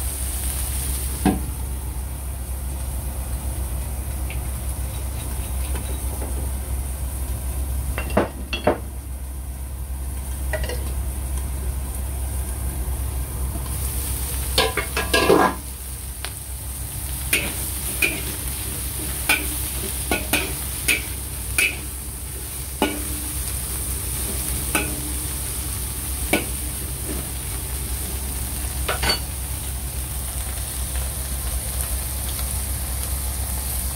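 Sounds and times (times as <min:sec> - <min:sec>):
gas burner rushing: 0:00.0 - 0:33.9
shrimp sizzling in a wok: 0:00.0 - 0:33.9
metal knocks against a wok: 0:22.8 - 0:23.2.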